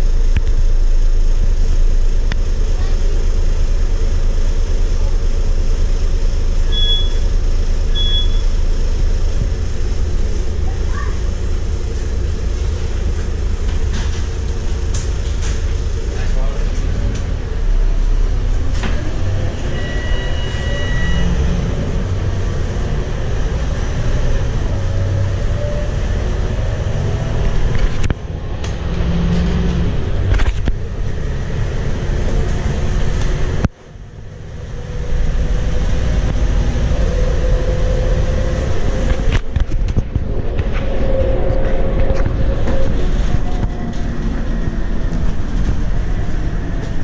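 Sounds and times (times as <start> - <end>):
bus diesel engine: 0.0 - 47.0
road rumble and rattles: 0.0 - 47.0
transmission whine: 0.0 - 47.0
short electronic beep: 6.7 - 7.3, 7.9 - 8.6, 19.6 - 21.5.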